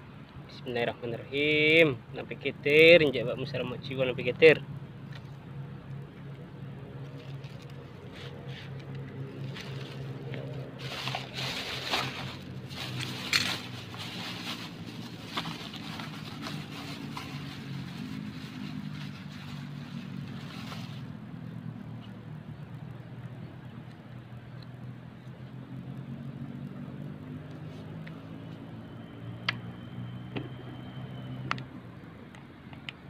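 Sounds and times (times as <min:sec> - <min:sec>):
low engine hum: 0:01.9 - 0:33.0
fishing rod clicks and scrapes: 0:07.0 - 0:12.2.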